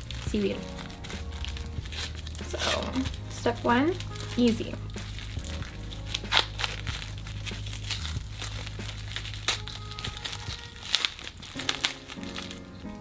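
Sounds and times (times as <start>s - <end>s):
background music: 0.0s - 13.0s
plastic wrapper crinkling: 0.0s - 13.0s.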